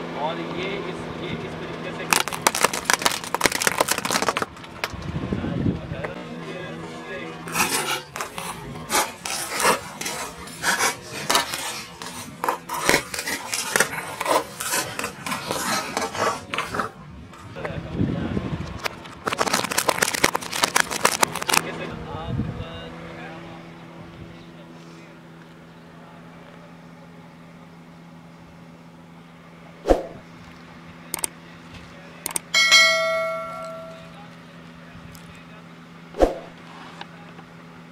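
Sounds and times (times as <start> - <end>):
steady low hum: 0.0 - 37.9
walnut shells cracking under tyre: 2.1 - 5.0, 9.2 - 16.7, 19.0 - 21.6
whoosh: 29.8 - 30.2, 36.1 - 36.5
notification bell chime: 32.6 - 34.1.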